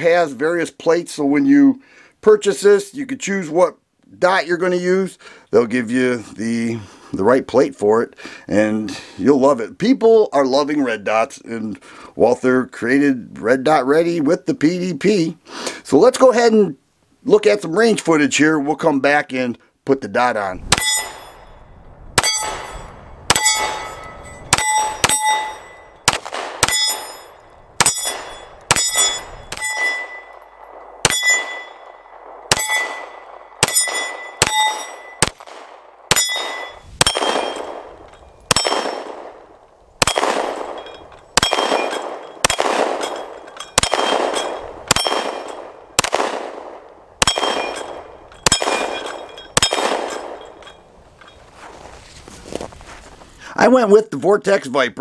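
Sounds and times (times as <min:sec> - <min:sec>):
pistol shots: 0:20.6 - 0:21.5, 0:22.2 - 0:50.8
steel target ringing: 0:20.7 - 0:39.4, 0:40.0 - 0:46.2, 0:47.2 - 0:51.5.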